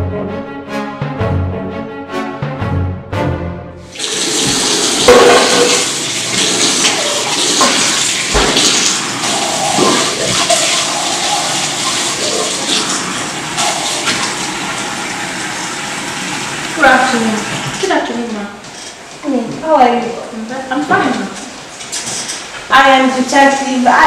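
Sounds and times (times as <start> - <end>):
music: 0.0 - 5.1
faucet running into steel sink: 3.9 - 18.1.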